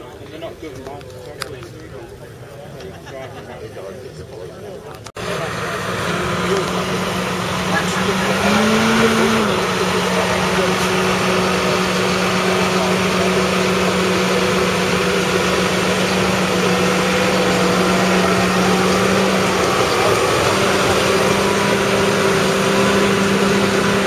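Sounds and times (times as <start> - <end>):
diesel engine idling: 5.1 - 24.0.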